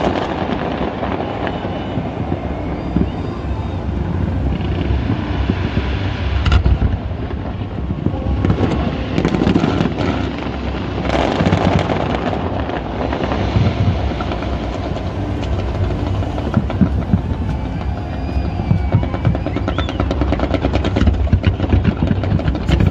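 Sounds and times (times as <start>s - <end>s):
fireworks bangs and crackling: 0.0s - 22.9s
low rumble: 0.0s - 22.9s.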